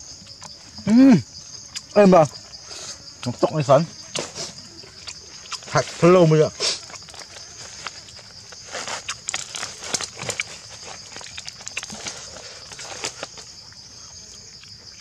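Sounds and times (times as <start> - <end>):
leaves rustling: 3.9 - 13.8
crisp skin crackling and snapping: 4.9 - 6.0, 6.8 - 13.8.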